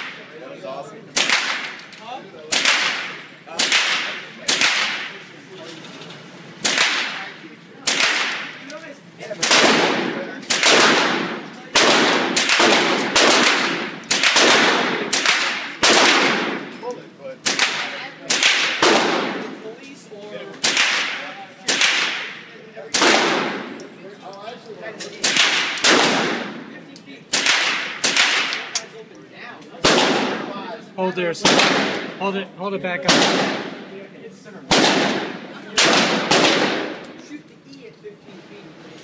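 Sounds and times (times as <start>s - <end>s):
rifle shots echoing indoors: 1.2s - 1.9s, 2.5s - 5.3s, 6.6s - 8.6s, 9.4s - 16.8s, 17.4s - 19.6s, 20.6s - 23.8s, 25.2s - 26.6s, 27.3s - 28.8s, 29.8s - 30.6s, 31.4s - 32.2s, 33.1s - 33.9s, 34.7s - 37.2s.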